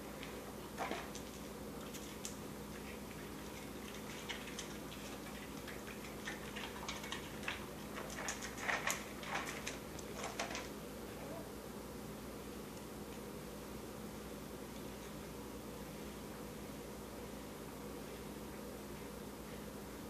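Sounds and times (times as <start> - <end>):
dog crunching snacks: 3.4 - 10.7.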